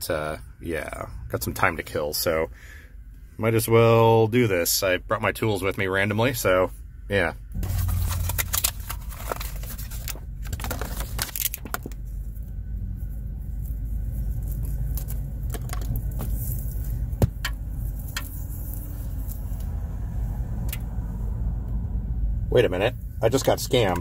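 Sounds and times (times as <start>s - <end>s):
steady low rumble: 0.0s - 24.0s
plastic packaging crinkling: 7.6s - 12.1s
cable being handled: 7.6s - 19.7s.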